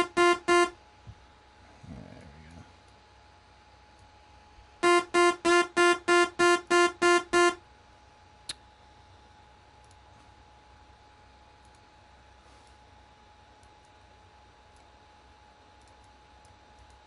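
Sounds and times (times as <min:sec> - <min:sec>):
repeated synthesizer note: 0:00.0 - 0:00.8, 0:04.8 - 0:07.6.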